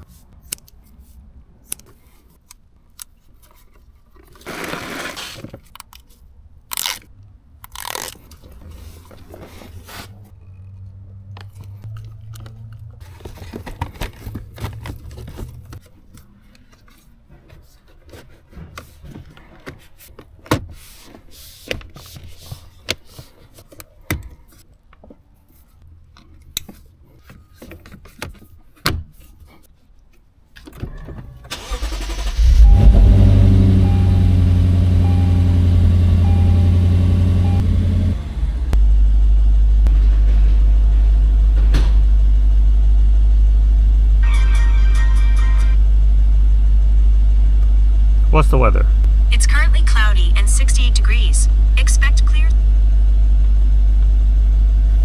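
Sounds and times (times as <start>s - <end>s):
car engine starting and idling: 31.4s - 55.0s.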